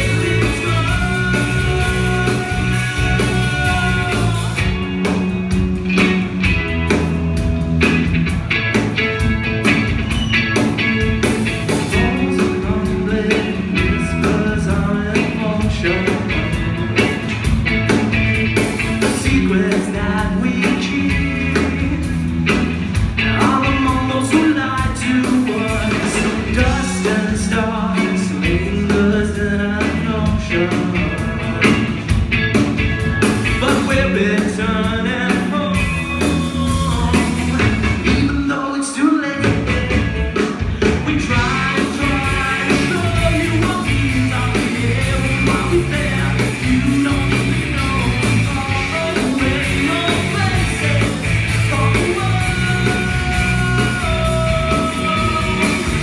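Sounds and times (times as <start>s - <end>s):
singer: 0.0s - 4.8s, 11.9s - 16.8s, 23.2s - 31.9s, 33.6s - 56.0s
bass guitar: 0.0s - 56.0s
drums: 0.0s - 56.0s
electric guitars: 0.0s - 56.0s.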